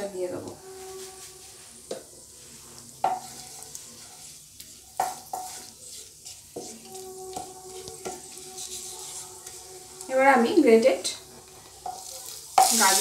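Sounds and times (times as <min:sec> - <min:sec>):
spices sizzling in ghee: 0:00.0 - 0:13.0
spatula knocking pan ringing: 0:06.6 - 0:08.7.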